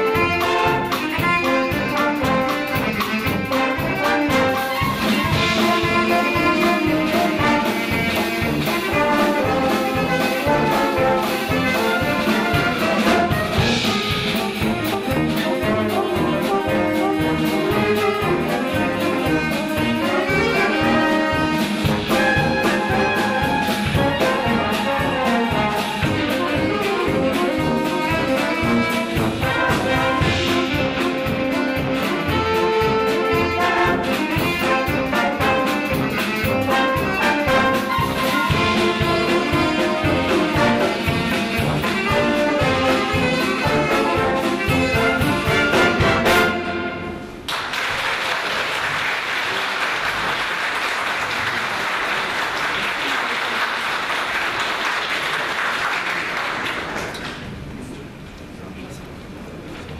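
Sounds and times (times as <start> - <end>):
wind band playing: 0.0 - 47.5.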